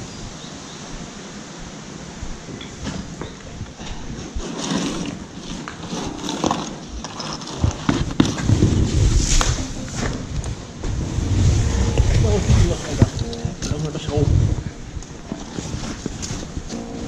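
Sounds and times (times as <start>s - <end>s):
low rumble: 8.5s - 15.2s.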